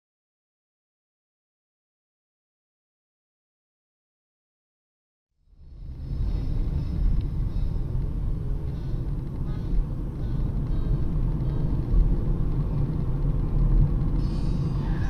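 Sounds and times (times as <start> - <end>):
car engine and tyre noise: 5.4 - 15.0.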